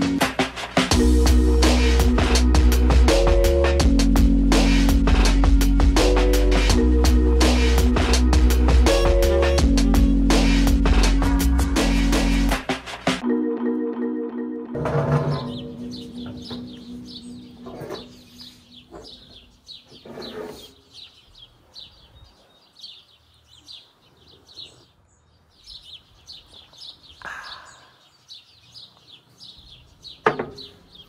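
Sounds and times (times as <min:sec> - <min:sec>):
small birds chirping: 0:15.2 - 0:31.0.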